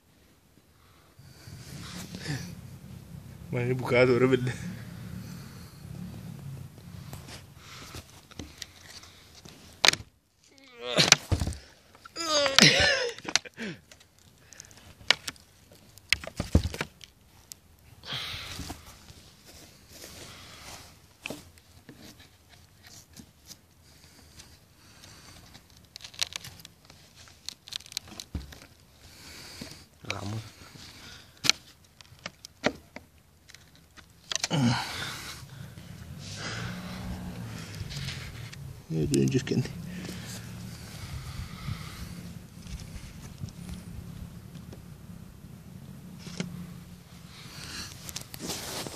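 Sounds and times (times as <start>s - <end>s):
person grunting: 10.5s - 11.4s, 12.2s - 13.8s, 34.4s - 35.3s.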